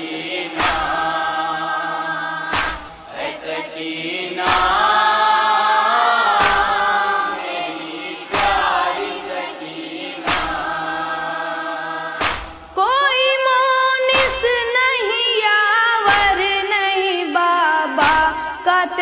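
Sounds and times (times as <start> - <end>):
heavy beat: 0.0 - 12.9, 14.1 - 14.8, 16.0 - 16.6, 18.0 - 18.7
chorus chanting in unison: 0.0 - 13.2, 14.0 - 19.0.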